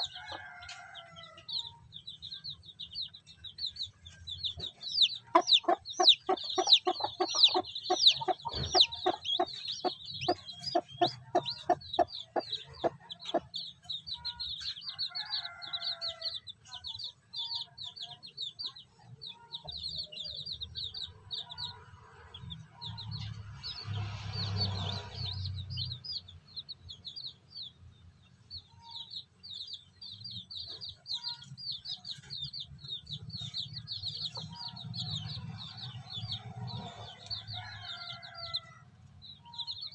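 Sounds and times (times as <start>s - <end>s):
chicks peeping: 0.0s - 39.9s
hen clucking: 4.5s - 16.3s.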